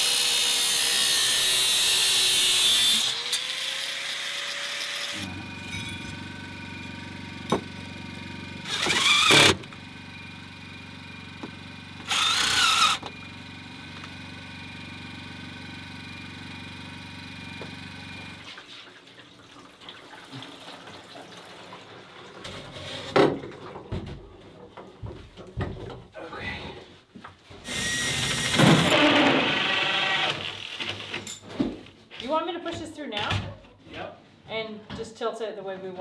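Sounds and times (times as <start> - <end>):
cordless drill whirring: 0.0 - 5.3, 8.6 - 9.6, 12.0 - 13.2, 27.6 - 31.2.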